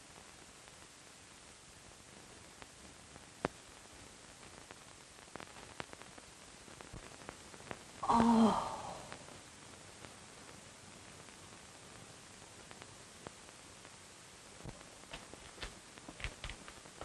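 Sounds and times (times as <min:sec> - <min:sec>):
film soundtrack hiss: 0:00.0 - 0:17.0
woman gasping: 0:08.0 - 0:09.2.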